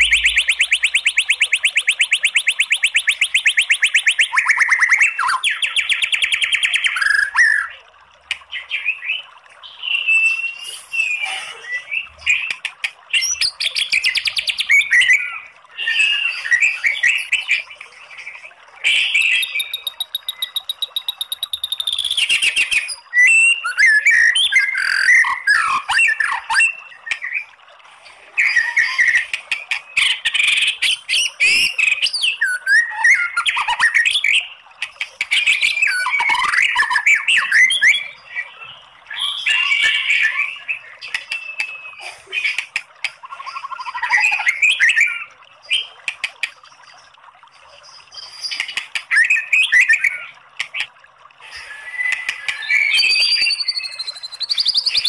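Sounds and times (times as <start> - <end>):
bird singing whistled phrases: 0.0 - 7.8, 8.8 - 12.4, 18.9 - 27.4, 35.3 - 42.1, 51.5 - 55.0.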